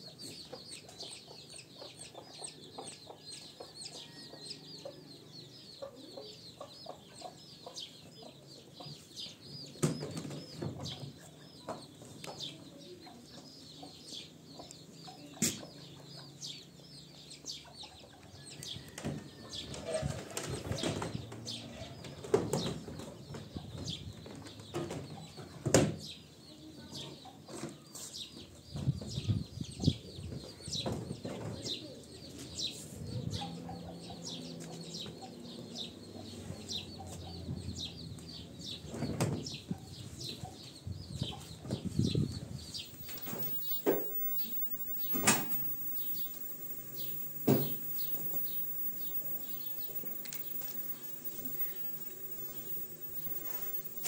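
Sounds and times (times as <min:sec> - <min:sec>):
chicks peeping: 0:00.0 - 0:19.8, 0:39.5 - 0:54.0.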